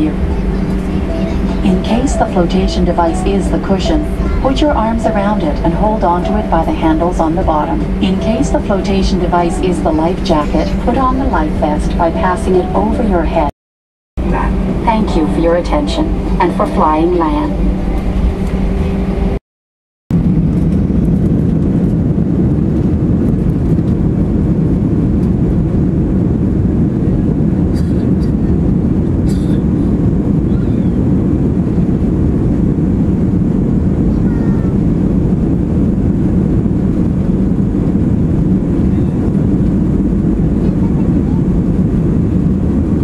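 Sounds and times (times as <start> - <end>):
jet engines rumbling in cabin: 0.0 - 13.6, 14.2 - 19.4, 20.1 - 43.0.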